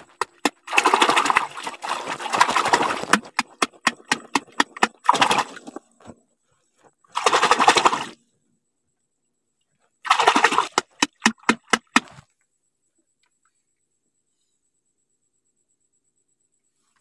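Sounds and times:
hand splashing shallow water: 0.0s - 5.7s, 10.1s - 12.2s.

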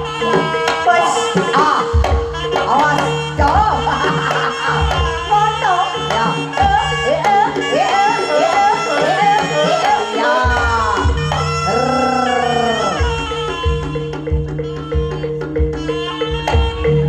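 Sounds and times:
hand drums beating: 0.0s - 17.0s
ornamented sliding lead melody: 0.0s - 17.0s.

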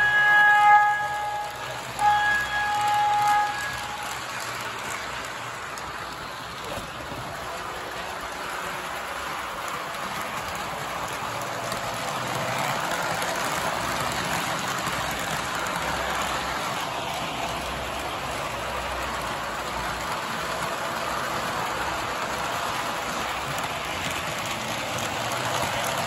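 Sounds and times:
model trains rolling on track: 0.0s - 26.0s.

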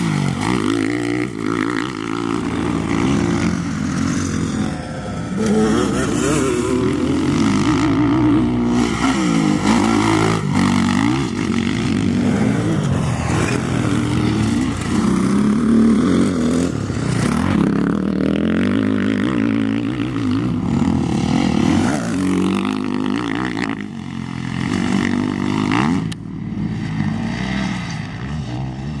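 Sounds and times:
dirt bike engines revving: 0.0s - 29.0s.

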